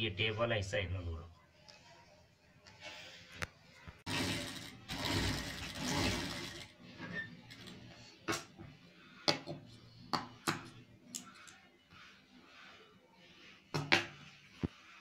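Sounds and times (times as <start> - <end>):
sewing machine stitching: 4.1 - 7.8.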